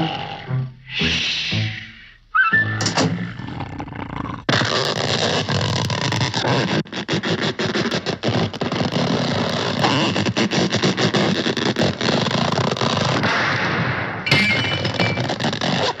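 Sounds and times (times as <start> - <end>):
cartoon snoring rasping rattle: 3.0 - 4.9.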